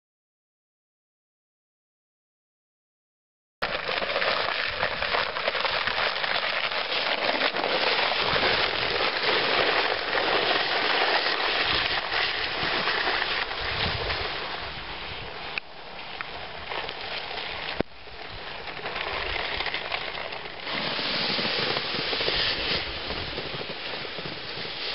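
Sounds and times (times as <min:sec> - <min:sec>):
ice pellets falling on snow: 0:03.6 - 0:14.7, 0:16.1 - 0:24.9.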